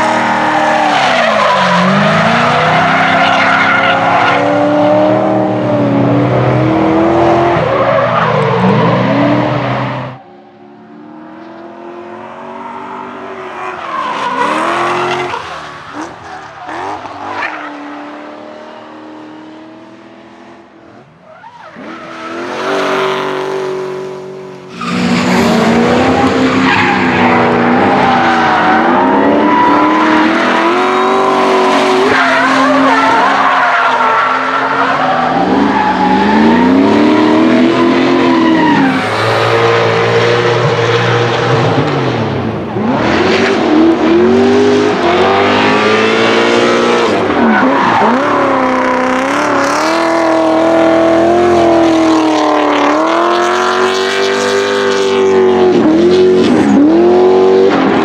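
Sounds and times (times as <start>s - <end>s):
tyres skidding and squealing: 0.0s - 11.5s, 12.1s - 19.3s, 20.9s - 58.0s
car engines revving: 0.0s - 58.0s.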